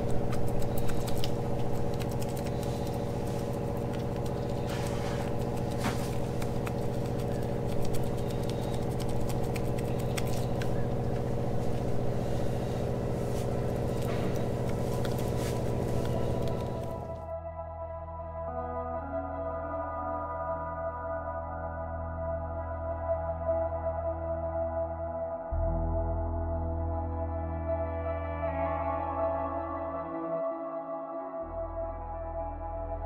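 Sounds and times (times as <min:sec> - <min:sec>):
motor humming: 0:00.0 - 0:17.3.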